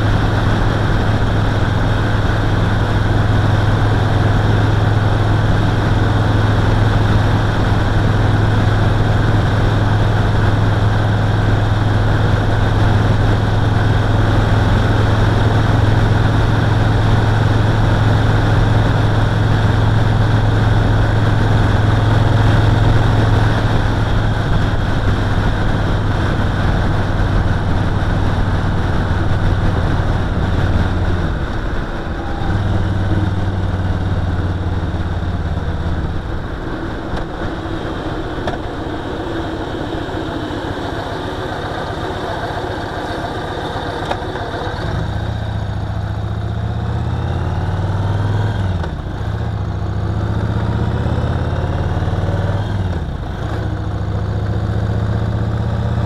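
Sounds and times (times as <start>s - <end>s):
motorcycle engine running: 0.0s - 56.0s
wind and road noise: 0.0s - 56.0s.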